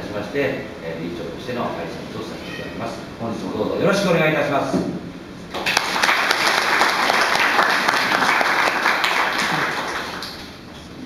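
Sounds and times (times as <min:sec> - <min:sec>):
audience applauding: 0:05.5 - 0:10.6.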